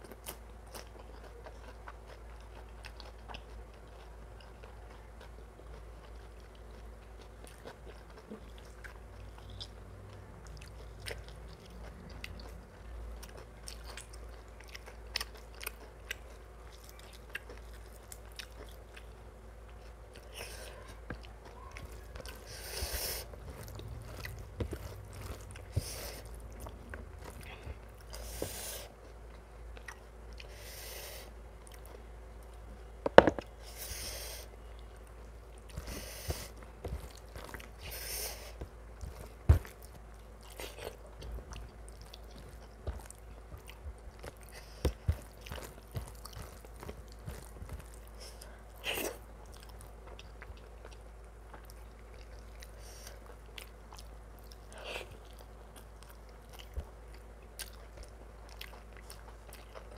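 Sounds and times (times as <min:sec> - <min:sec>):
wet chewing and mouth clicks: 0:00.0 - 0:32.7, 0:34.2 - 0:59.9
sharp crunches: 0:42.0 - 0:48.4.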